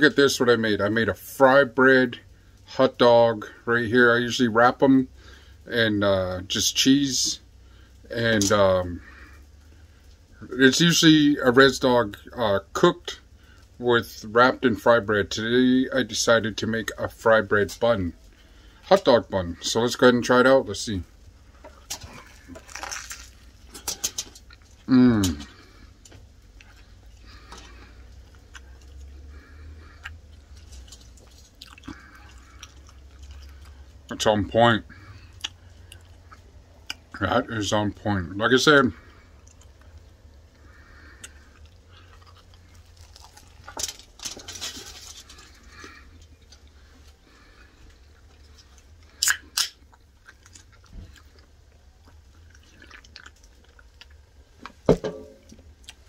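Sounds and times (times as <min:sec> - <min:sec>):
steady low hum: 0:00.0 - 0:56.0
person chewing: 0:21.5 - 0:34.1, 0:35.0 - 0:37.2, 0:39.0 - 0:54.7, 0:55.4 - 0:56.0.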